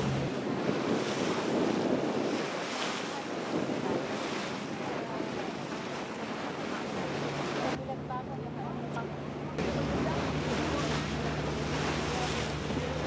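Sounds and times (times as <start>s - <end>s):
wind buffeting microphone: 0.0s - 7.7s
choppy water splashing past boat: 0.0s - 13.0s.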